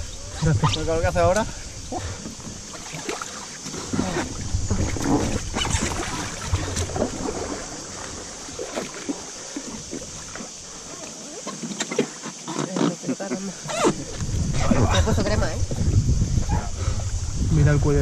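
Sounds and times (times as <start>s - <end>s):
water rushing and splashing: 0.0s - 18.0s
short splashes and knocks: 0.4s - 14.4s.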